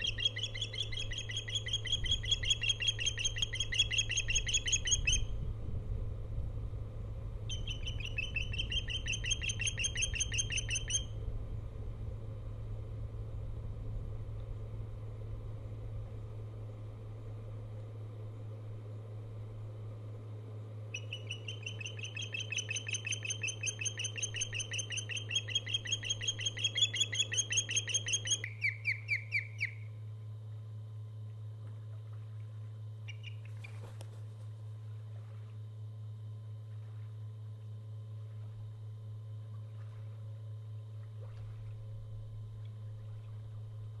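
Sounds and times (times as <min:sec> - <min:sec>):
osprey whistled chirps: 0:00.0 - 0:05.3, 0:07.5 - 0:11.1, 0:21.0 - 0:29.9, 0:33.1 - 0:33.5
low hum: 0:00.0 - 0:44.0.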